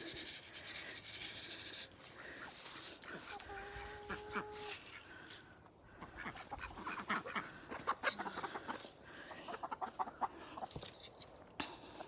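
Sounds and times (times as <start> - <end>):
chickens clucking: 2.2 - 4.8, 5.9 - 11.0.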